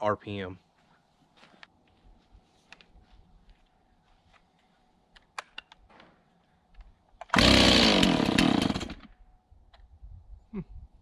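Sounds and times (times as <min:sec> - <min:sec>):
chainsaw starting and running: 0:07.3 - 0:09.1.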